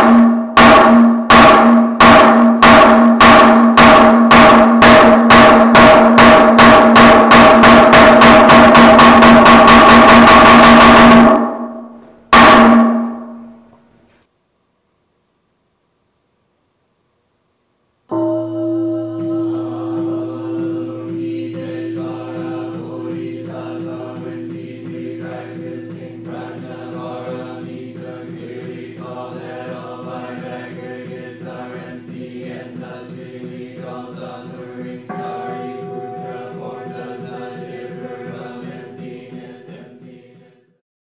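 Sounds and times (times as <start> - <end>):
regular beat: 0.0 - 13.8, 18.1 - 40.4
low drone: 18.1 - 39.9
voices chanting in unison: 18.8 - 40.7.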